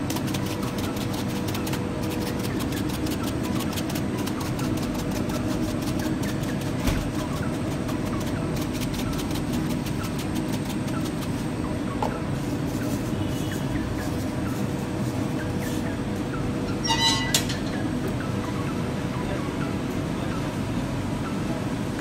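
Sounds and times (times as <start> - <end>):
short high-pitched squeak: 16.8 - 17.6.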